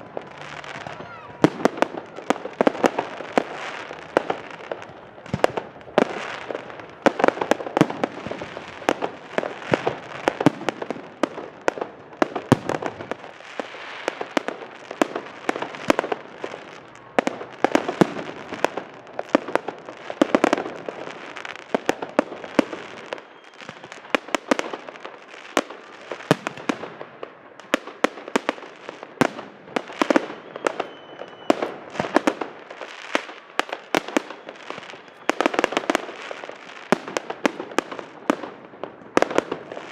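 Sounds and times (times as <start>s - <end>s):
fireworks bursting with sharp bangs: 0.0s - 39.9s.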